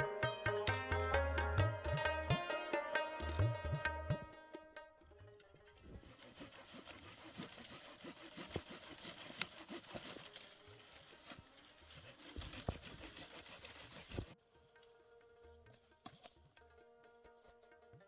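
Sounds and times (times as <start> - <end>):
hand tool rasping through wood: 5.9 - 14.4
dry twigs crackling: 6.0 - 14.4.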